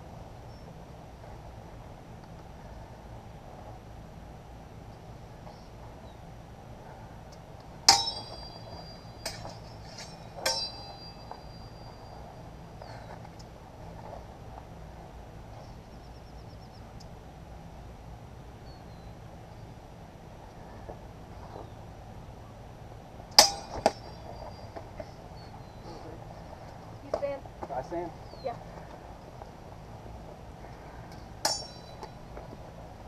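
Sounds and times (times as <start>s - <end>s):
steel swords clashing: 7.9s - 11.9s, 23.4s - 24.2s, 31.4s - 32.2s.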